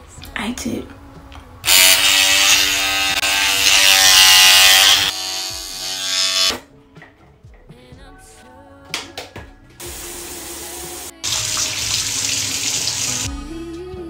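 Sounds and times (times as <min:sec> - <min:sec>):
electric toothbrush buzzing: 0:01.7 - 0:06.6, 0:09.8 - 0:13.3.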